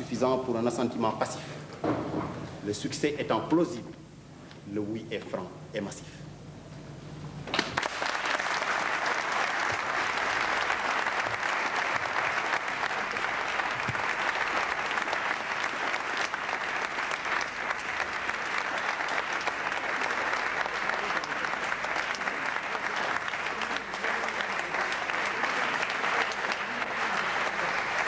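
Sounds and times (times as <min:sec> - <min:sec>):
audience applauding: 0:07.6 - 0:28.0.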